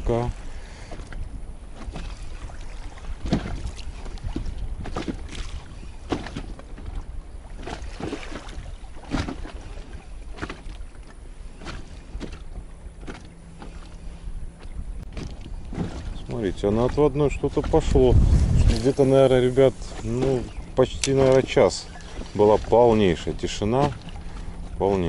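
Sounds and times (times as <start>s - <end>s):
wind on microphone: 0.0s - 10.1s, 13.8s - 25.0s
waves slapping against boat hull: 0.0s - 25.0s.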